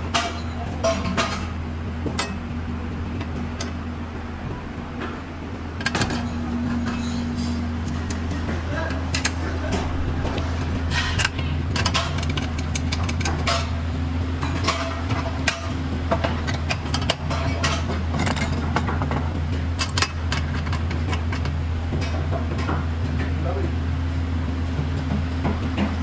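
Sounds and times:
steady low hum: 0.0s - 26.0s
metal seat frame clicks and clanks: 10.9s - 13.8s, 14.4s - 22.1s.

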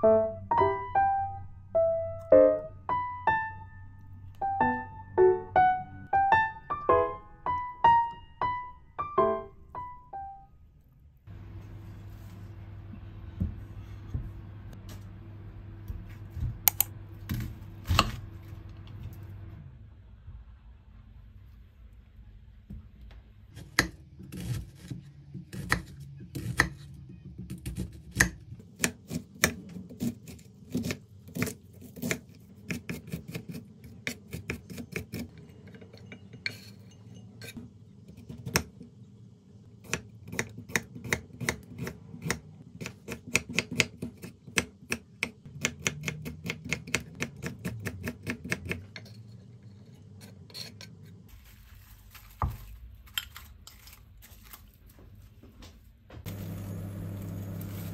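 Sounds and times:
knife chopping on wooden board: 39.9s - 48.8s.

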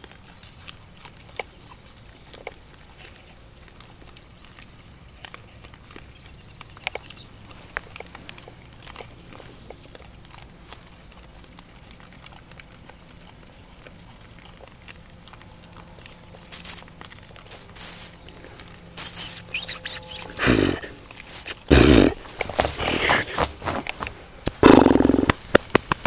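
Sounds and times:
faint rustling and crunching: 0.0s - 26.0s
wild boar squealing: 16.3s - 23.5s.

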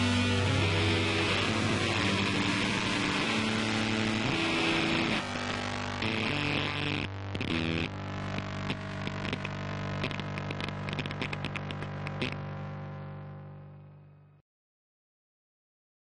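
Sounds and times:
low held music chord: 0.0s - 10.0s.

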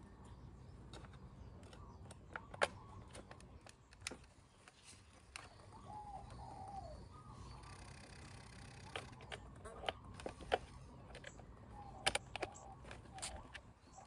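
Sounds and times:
dove cooing: 5.5s - 10.0s.

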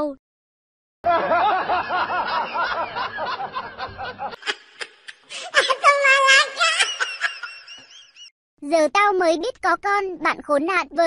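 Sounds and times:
repeated laughter: 1.1s - 8.3s.

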